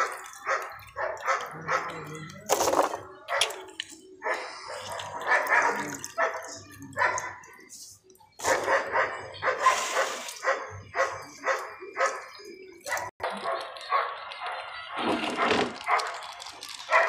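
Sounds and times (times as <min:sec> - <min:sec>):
dog barking: 0:00.0 - 0:02.1, 0:04.2 - 0:07.5, 0:08.4 - 0:16.2.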